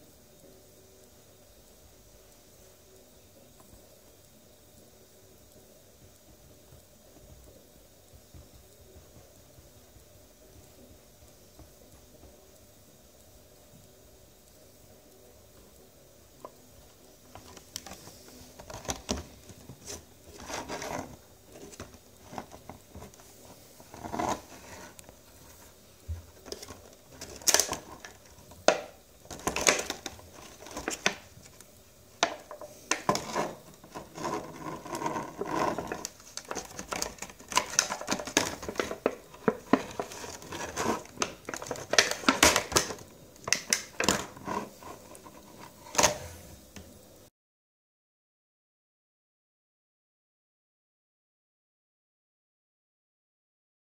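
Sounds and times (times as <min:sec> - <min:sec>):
plastic packaging crinkling: 0:26.2 - 0:46.2.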